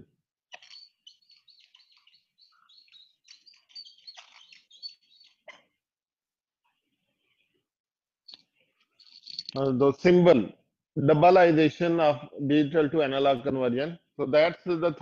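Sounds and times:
marker squeaking on a whiteboard: 0.5 - 5.8.

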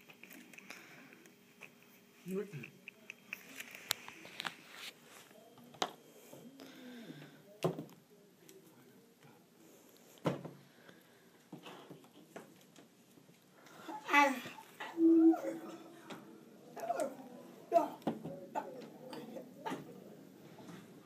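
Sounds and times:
faint voice: 13.8 - 21.0.

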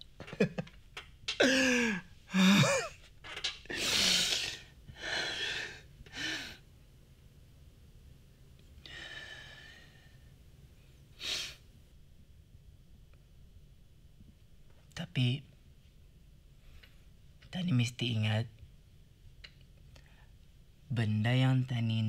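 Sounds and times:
man gasping breaths: 1.4 - 2.8.

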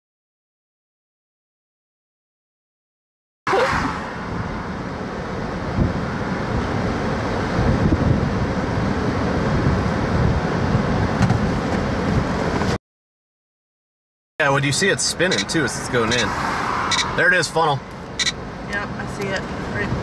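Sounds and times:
wind on microphone: 7.5 - 8.5.

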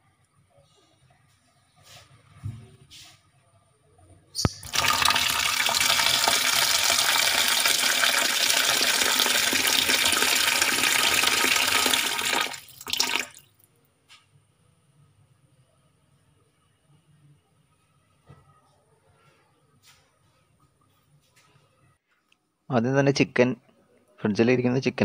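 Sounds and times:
tap water running into bowl: 4.5 - 13.4.

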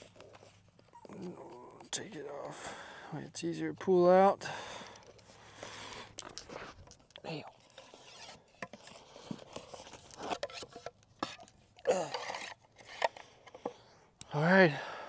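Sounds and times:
person grunting: 11.9 - 12.2.

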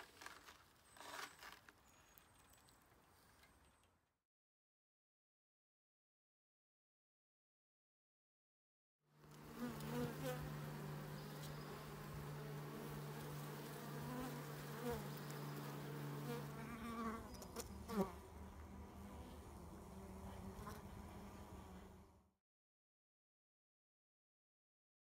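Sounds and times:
honeybee colony humming: 9.2 - 22.2
bees buzzing past: 9.2 - 22.3.

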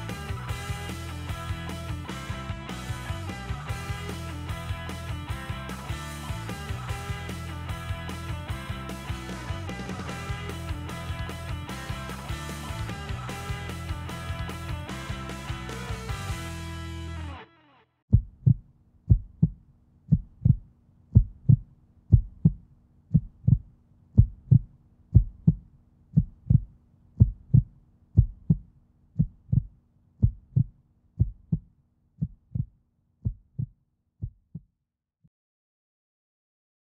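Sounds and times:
heartbeat-like low thumps: 18.1 - 34.7.

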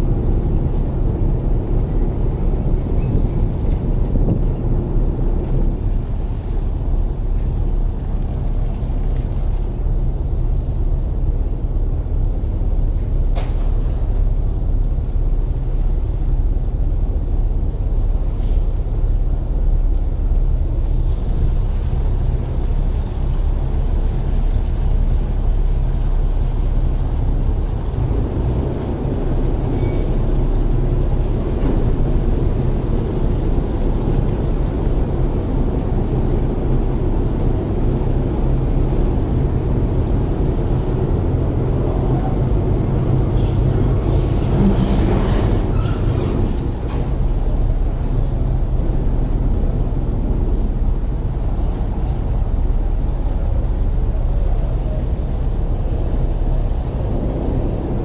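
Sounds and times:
ferry engine droning: 0.0 - 58.0
knocks and squeaks: 29.7 - 30.3.

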